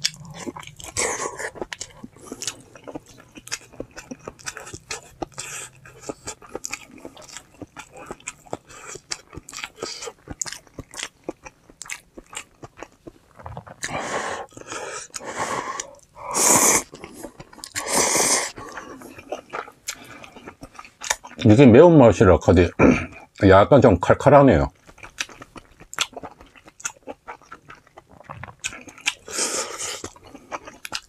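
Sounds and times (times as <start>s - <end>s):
crisp crunchy chewing: 0.0s - 15.2s, 24.7s - 31.0s
noisy eating sounds: 0.0s - 31.0s.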